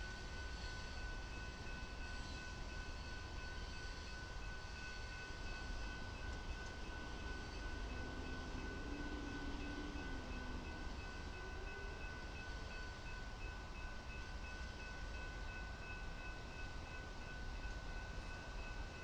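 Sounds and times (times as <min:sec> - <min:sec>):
crossing warning bell ringing: 0:00.0 - 0:19.0.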